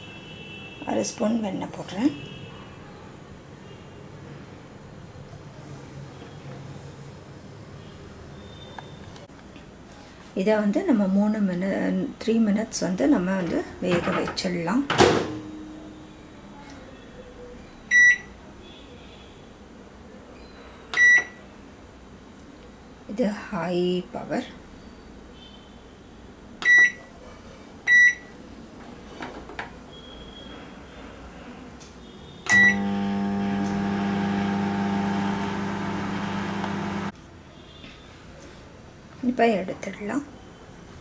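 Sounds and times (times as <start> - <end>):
microwave keypad beeping: 17.9 - 18.3, 21.0 - 21.4, 26.6 - 27.0, 32.5 - 37.1.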